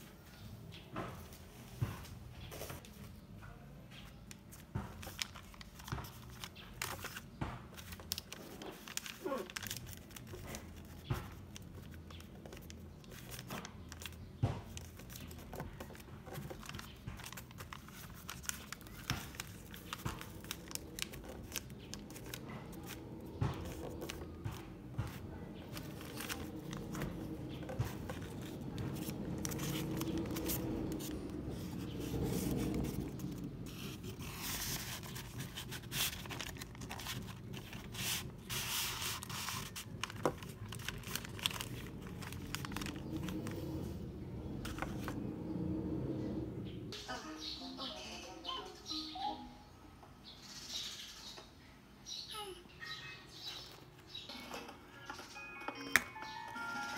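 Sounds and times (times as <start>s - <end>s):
paper rustling and crinkling: 4.0s - 45.3s.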